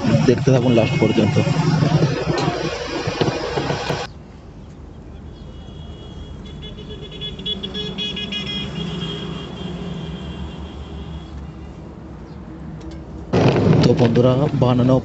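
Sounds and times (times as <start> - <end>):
vehicle horn chord: 0.0 - 3.4, 5.3 - 11.8
road traffic rumble: 0.0 - 15.0.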